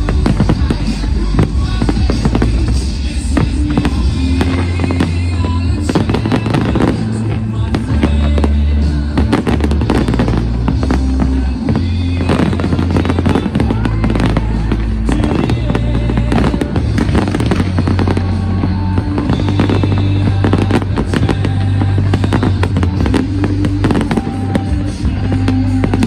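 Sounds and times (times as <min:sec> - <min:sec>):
fireworks bangs and crackling: 0:00.0 - 0:26.0
loud music with deep bass: 0:00.0 - 0:26.0.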